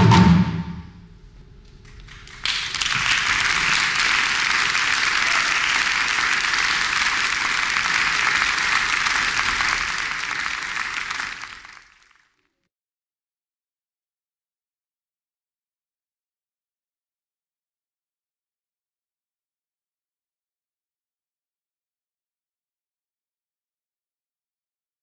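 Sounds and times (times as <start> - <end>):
live percussion: 0.0 - 1.0
audience applause: 1.8 - 12.4.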